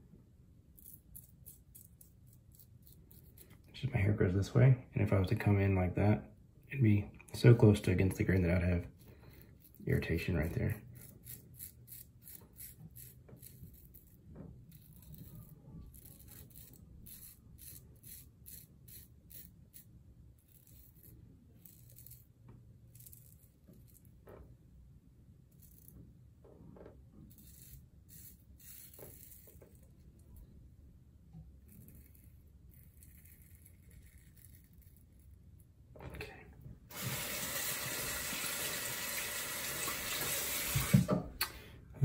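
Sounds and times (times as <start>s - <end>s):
razor blade cutting stubble: 9.6s - 22.3s.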